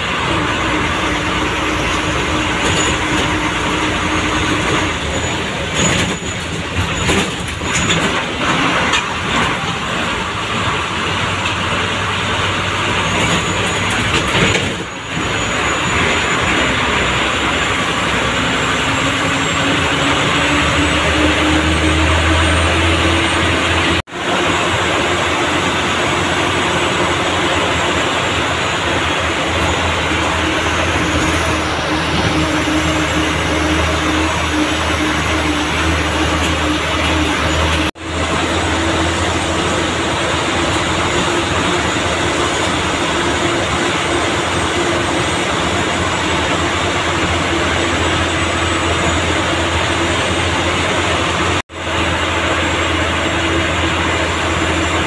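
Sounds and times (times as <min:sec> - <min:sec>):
bus engine under load: 0:00.0 - 0:55.0
cab rattling: 0:01.2 - 0:18.6.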